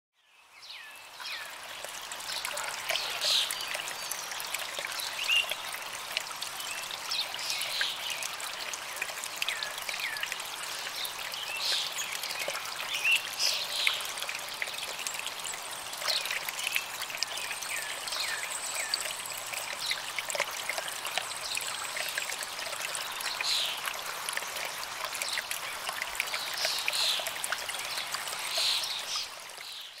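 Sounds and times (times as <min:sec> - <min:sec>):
water trickling and splashing: 0:00.3 - 0:30.0.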